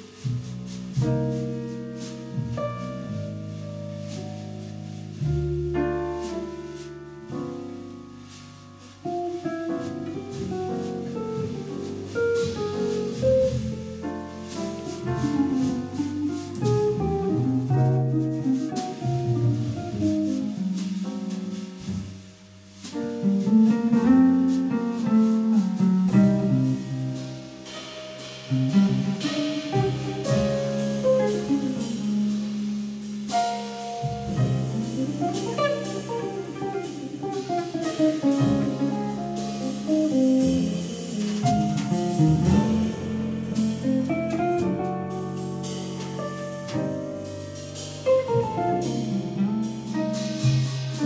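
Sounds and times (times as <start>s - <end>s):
drum kit with cymbals: 0.0s - 51.0s
upright double bass: 0.0s - 51.0s.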